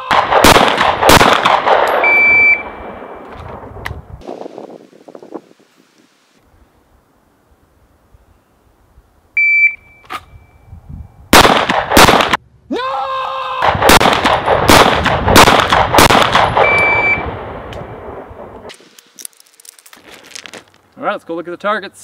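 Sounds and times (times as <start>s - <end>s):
pistol shots with echo: 0.1s - 2.2s, 11.3s - 12.4s, 13.7s - 16.8s
shot timer beep: 2.0s - 2.7s, 9.4s - 10.5s, 16.6s - 17.3s.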